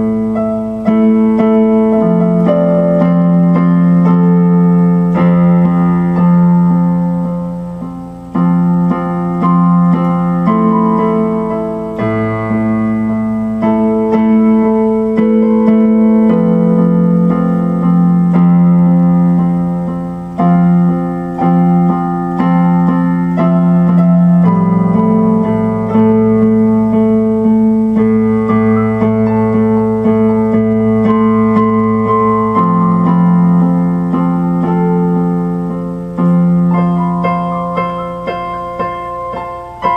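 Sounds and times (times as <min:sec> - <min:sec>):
keyboard piano chords: 0:00.0 - 0:39.9.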